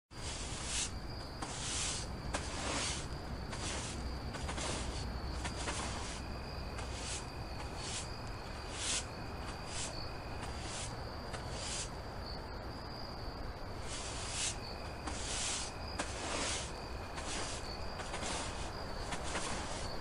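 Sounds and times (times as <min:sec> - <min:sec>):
crickets chirping: 0:00.1 - 0:20.0
broom sweeping floor: 0:00.2 - 0:12.0, 0:13.8 - 0:20.0.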